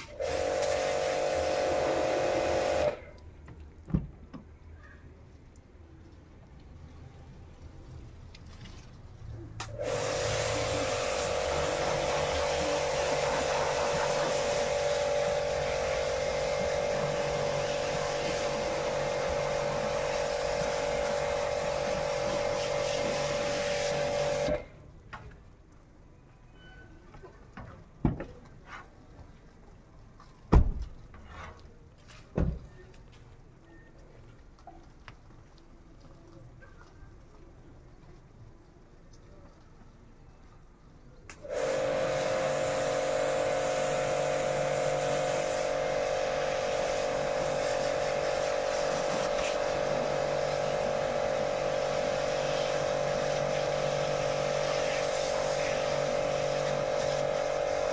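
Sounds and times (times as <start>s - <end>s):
air blow gun hissing: 0.0s - 3.0s, 9.6s - 24.6s, 41.4s - 57.9s.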